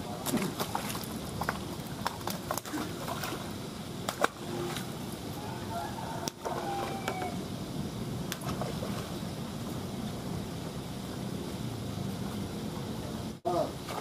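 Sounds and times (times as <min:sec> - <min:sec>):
pond aerators splashing water: 0:00.0 - 0:10.1.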